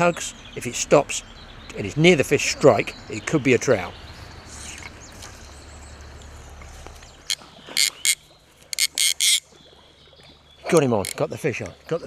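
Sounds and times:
fly reel rasping: 8.8 - 9.4.

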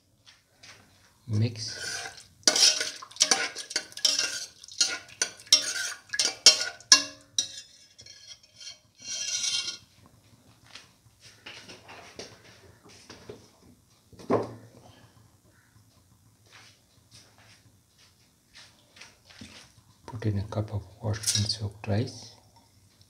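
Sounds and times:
spoon scraping metal pot: 1.6 - 9.9, 21.1 - 21.6.

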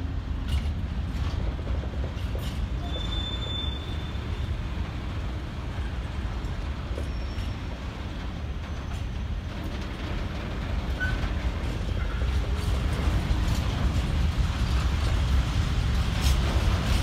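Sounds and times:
train wagons rumbling on rails: 0.0 - 17.0
wheel squeal: 2.8 - 4.4, 6.9 - 7.8, 10.9 - 11.4.

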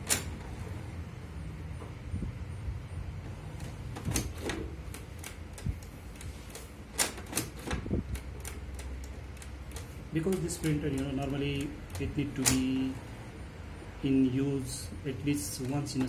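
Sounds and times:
printer motor hum: 0.0 - 16.0
sharp mechanical clicks: 3.6 - 12.9.

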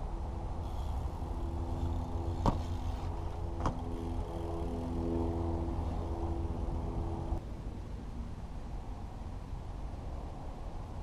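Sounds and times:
low rumble and hum: 0.0 - 7.4
bike clacking on concrete: 1.8 - 4.2.

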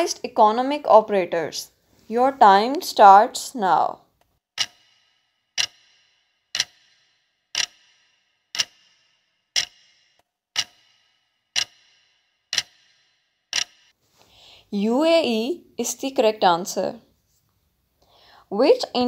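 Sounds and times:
clock ticking with ringing tail: 4.6 - 14.0.

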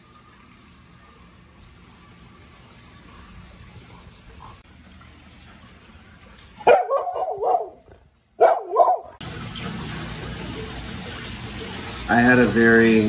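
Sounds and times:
dog barking: 6.6 - 7.8, 8.4 - 9.2.

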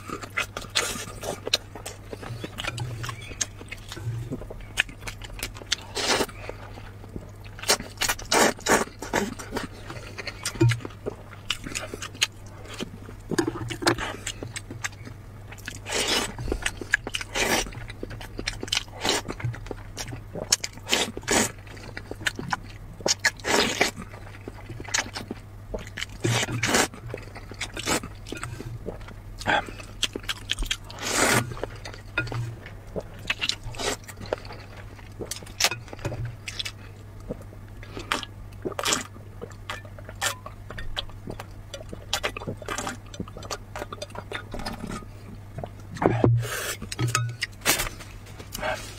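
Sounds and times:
chewing and smacking: 0.0 - 48.9
steady low hum: 0.0 - 48.9
noodles slurped: 15.6 - 17.8, 18.4 - 39.1.

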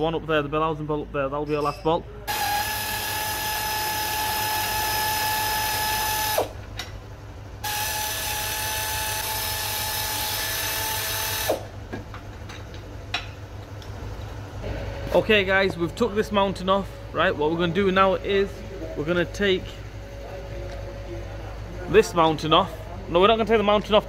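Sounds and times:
air ratchet whining: 2.3 - 6.9, 7.6 - 11.8.

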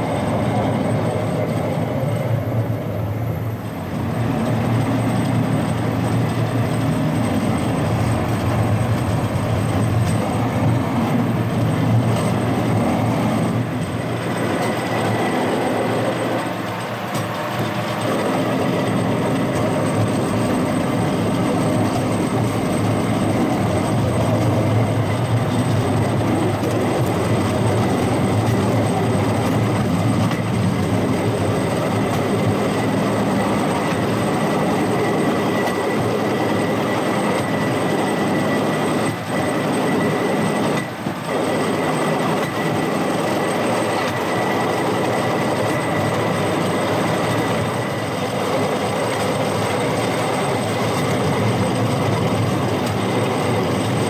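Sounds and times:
wheels rumbling on rails: 0.0 - 54.0.

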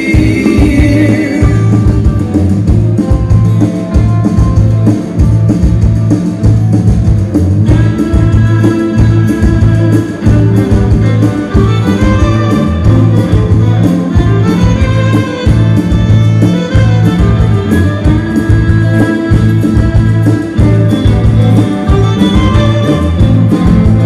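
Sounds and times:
bass line: 0.0 - 24.0
drum beat: 0.0 - 24.0
guitar: 0.0 - 24.0.

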